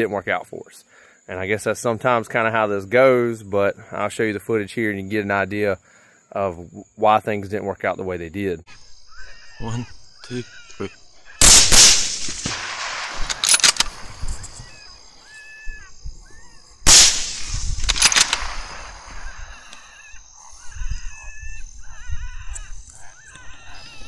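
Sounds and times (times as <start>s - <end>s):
wavering high-pitched calls: 8.7s - 16.8s, 18.5s - 24.0s
sharp clicks: 9.8s - 15.0s, 16.9s - 20.2s
rifle shot echoing: 11.4s - 15.0s, 16.8s - 19.8s.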